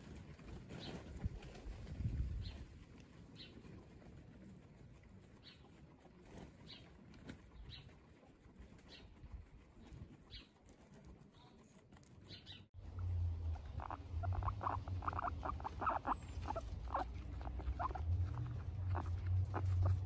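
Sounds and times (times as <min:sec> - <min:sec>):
guinea pig chewing grass: 0:00.0 - 0:20.0
low steady rumble: 0:12.8 - 0:20.0.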